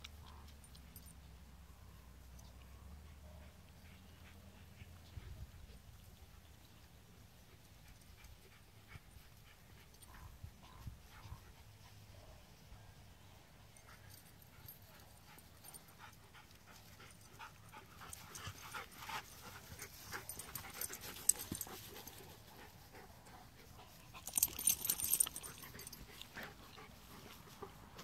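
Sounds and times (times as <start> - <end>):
dog panting: 3.0 - 6.4, 13.8 - 28.0
dog sniffing and snuffling: 13.7 - 28.0.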